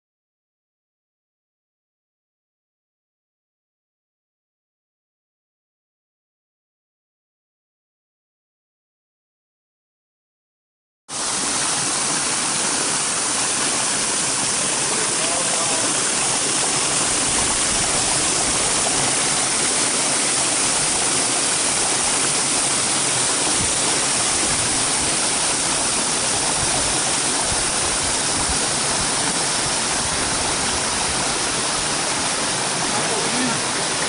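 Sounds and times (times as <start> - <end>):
stream rushing over rocks: 11.1 - 34.0.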